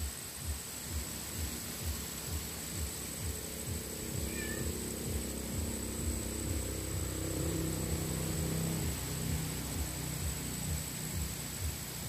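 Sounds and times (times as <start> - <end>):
steady low hum: 0.0 - 12.0
wind gusting through bamboo: 0.0 - 12.0
faint high chirp: 4.1 - 5.3.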